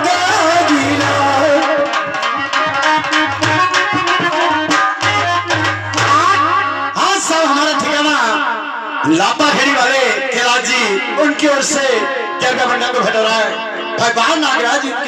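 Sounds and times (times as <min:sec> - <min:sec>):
harmonium held notes: 0:00.0 - 0:08.0, 0:10.6 - 0:15.0
person speaking: 0:09.1 - 0:15.0.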